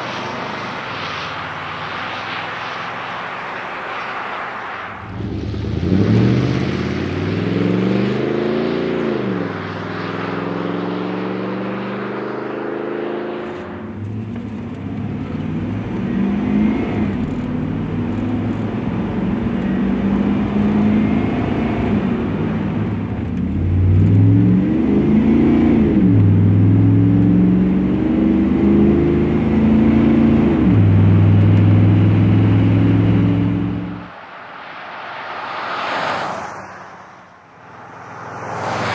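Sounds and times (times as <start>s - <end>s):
pickup truck engine revving: 5.1s - 13.4s.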